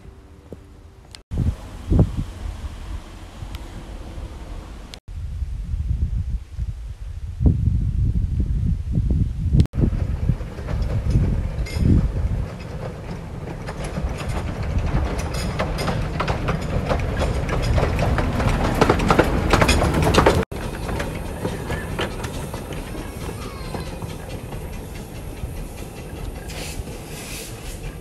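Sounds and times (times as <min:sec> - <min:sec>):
miniature train wheels clicking: 0:10.5 - 0:28.0
steam hissing: 0:20.5 - 0:28.0.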